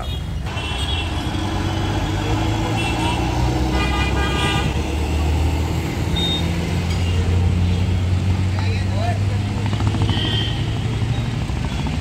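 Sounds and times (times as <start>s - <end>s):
vehicle horn honking: 0.0s - 1.3s, 2.7s - 4.8s, 10.0s - 10.8s
traffic engines rumbling: 0.0s - 12.0s.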